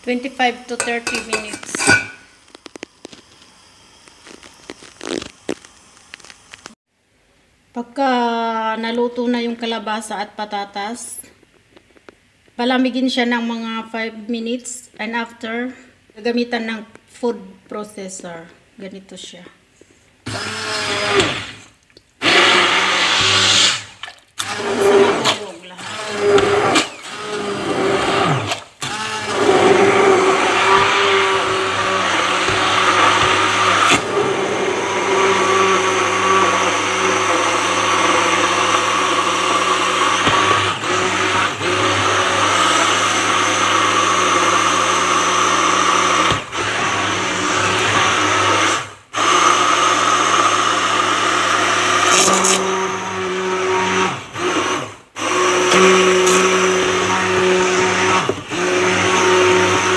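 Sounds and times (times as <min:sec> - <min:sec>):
immersion blender churning soup: 0:20.3 - 0:59.9.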